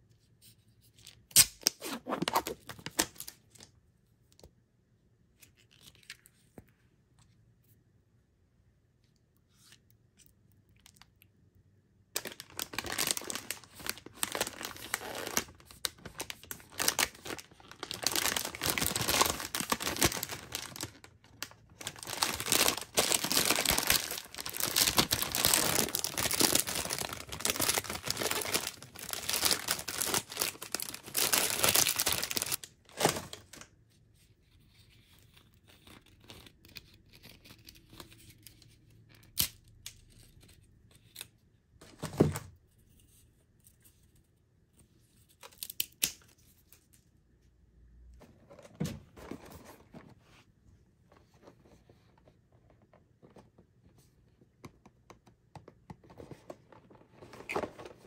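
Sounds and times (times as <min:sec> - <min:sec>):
plastic wrapper crinkling and tearing: 0:01.3 - 0:03.7, 0:12.2 - 0:33.7.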